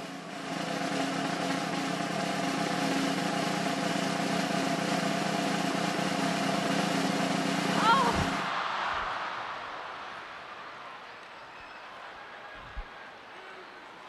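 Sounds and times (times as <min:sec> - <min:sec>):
arena crowd noise: 0:00.0 - 0:14.0.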